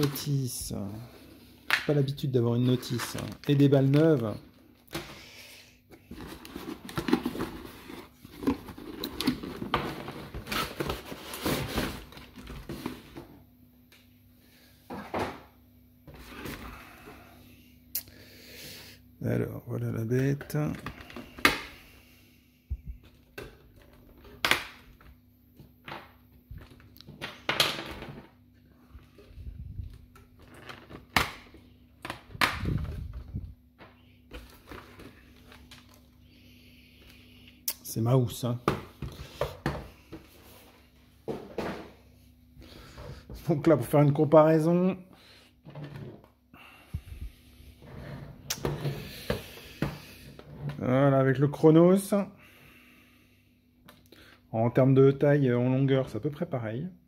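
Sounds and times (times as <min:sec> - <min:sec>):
cardboard rustling and scraping: 0:06.0 - 0:13.3.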